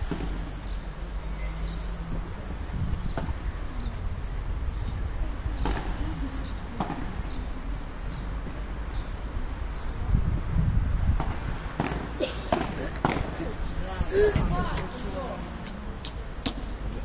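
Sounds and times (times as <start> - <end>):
ball hitting rackets and court: 6.8 - 7.1, 11.2 - 13.3.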